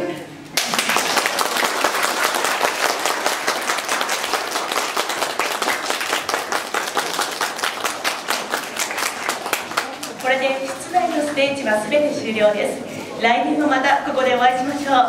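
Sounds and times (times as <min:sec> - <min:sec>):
audience applauding: 0:00.6 - 0:11.5.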